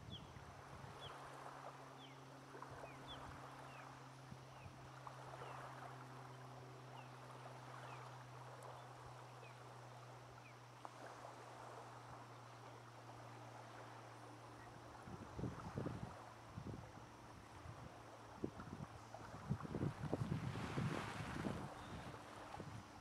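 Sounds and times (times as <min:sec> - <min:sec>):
steady low hum: 0:00.0 - 0:23.0
small waves lapping on pebbles: 0:01.0 - 0:23.0.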